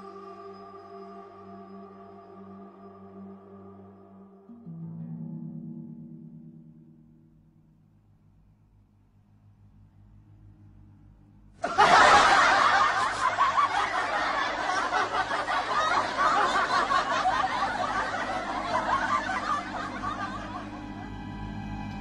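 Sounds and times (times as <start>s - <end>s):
group of people laughing: 11.6s - 21.6s.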